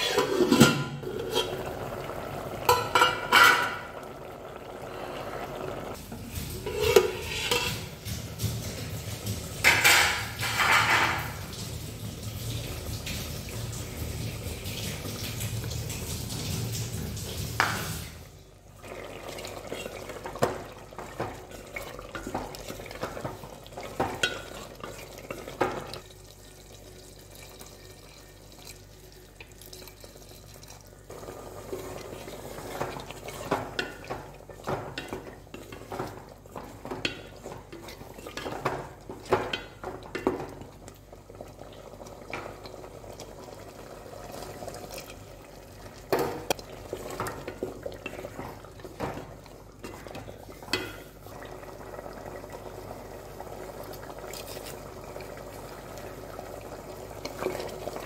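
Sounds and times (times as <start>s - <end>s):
ladle scraping steel pot: 0.0s - 1.9s, 2.6s - 4.0s, 6.6s - 8.0s.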